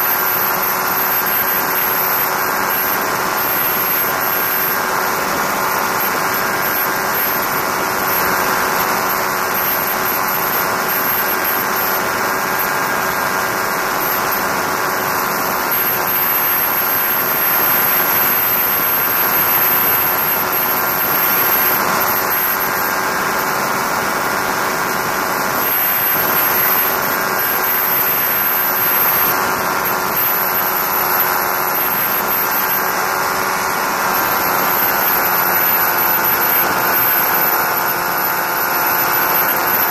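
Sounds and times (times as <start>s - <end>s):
aircraft engine and propeller drone: 0.0s - 39.9s.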